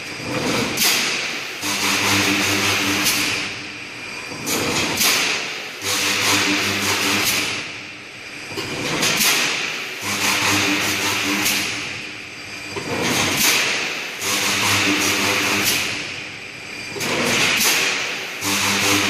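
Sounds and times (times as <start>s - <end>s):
welding machine hum with hiss: 0.0s - 19.0s.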